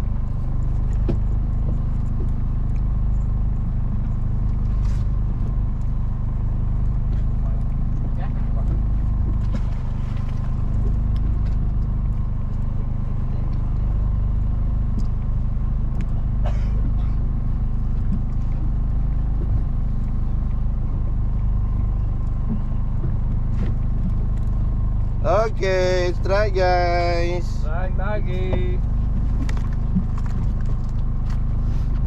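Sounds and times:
boat engine humming: 0.0s - 32.0s.

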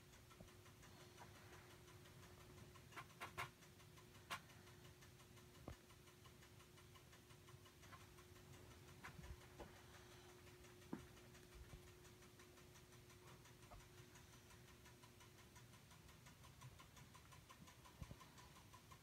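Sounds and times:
faint regular ticking: 0.0s - 19.0s.

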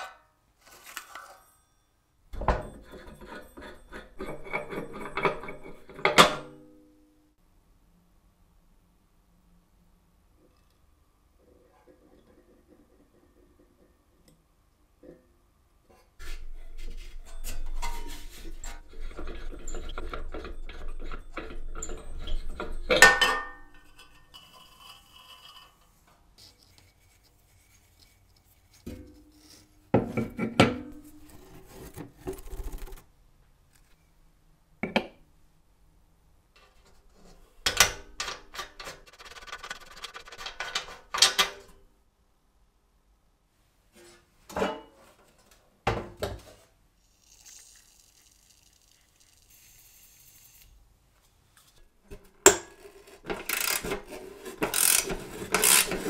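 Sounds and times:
metal scraping with tools: 2.4s - 6.5s, 15.9s - 30.2s, 36.6s - 41.8s, 52.6s - 56.0s.

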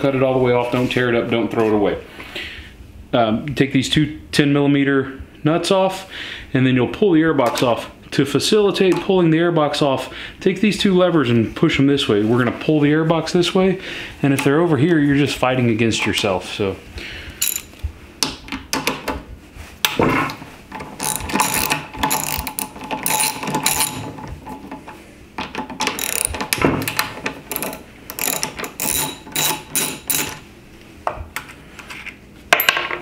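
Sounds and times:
socket ratchet clicking: 17.4s - 17.7s, 21.0s - 24.1s, 25.8s - 30.4s.

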